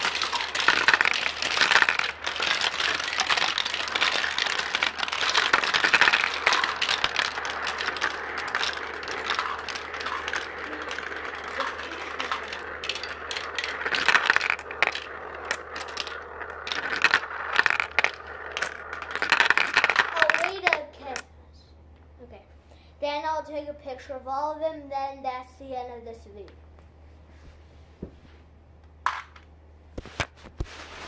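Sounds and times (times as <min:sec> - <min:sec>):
marbles rattling down plastic run: 0:00.0 - 0:21.3.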